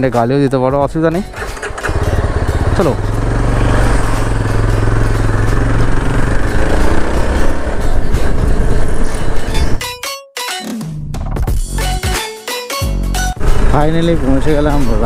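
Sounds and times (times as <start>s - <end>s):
motorcycle engine accelerating: 1.2s - 9.8s, 13.4s - 15.0s
wind noise on microphone: 7.2s - 9.8s.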